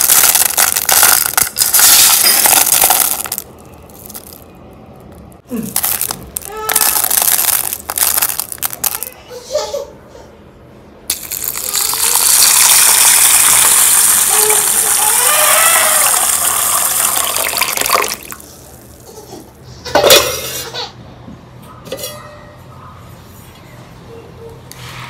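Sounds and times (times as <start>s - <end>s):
kitchenware clinking: 19.9s - 20.7s.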